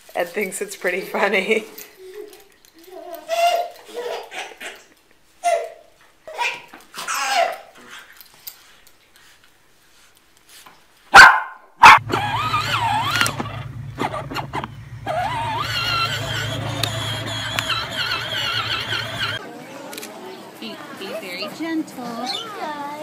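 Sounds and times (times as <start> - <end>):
electric toy quad bike hum: 12.0 - 19.4.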